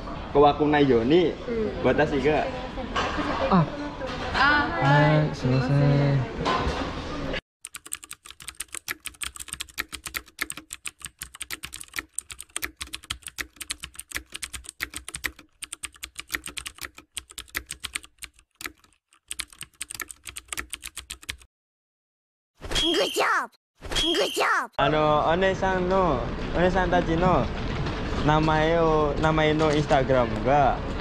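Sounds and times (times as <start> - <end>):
keyboard typing clicks: 7.6 - 21.5
voices: 22.8 - 25.2.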